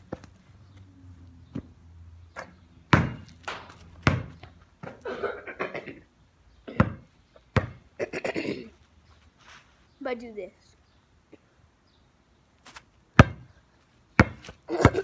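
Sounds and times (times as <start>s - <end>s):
basketball bouncing on pavement: 0.0s - 5.0s, 6.7s - 8.0s, 13.1s - 15.0s.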